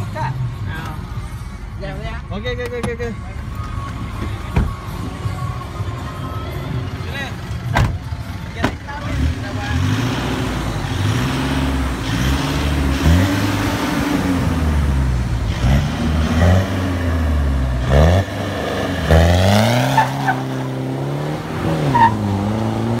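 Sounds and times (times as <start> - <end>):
diesel engine revving: 6.8 - 23.0.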